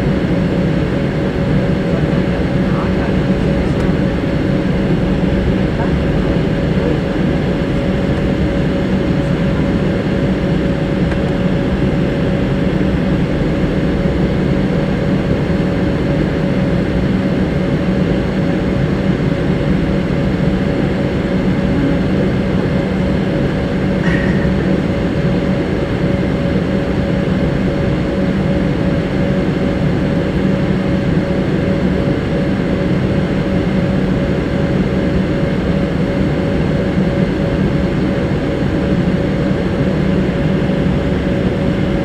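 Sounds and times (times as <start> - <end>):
jet engines humming in cabin: 0.0 - 42.0.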